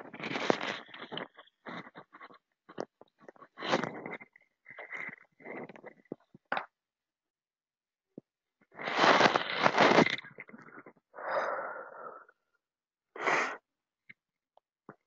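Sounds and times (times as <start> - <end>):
person breathing loudly: 11.1 - 12.4, 13.2 - 13.6.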